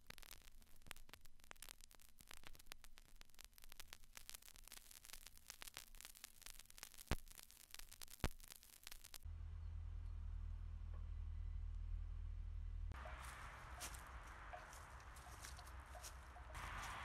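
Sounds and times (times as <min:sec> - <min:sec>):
crackling static: 0:00.0 - 0:09.3, 0:12.9 - 0:17.0.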